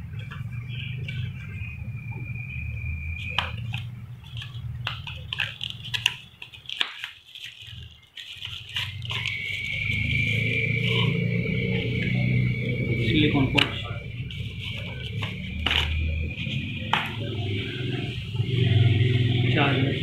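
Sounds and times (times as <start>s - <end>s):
packaging rustling and clicking: 3.2s - 10.1s, 13.6s - 17.3s
steady low hum: 8.8s - 20.0s.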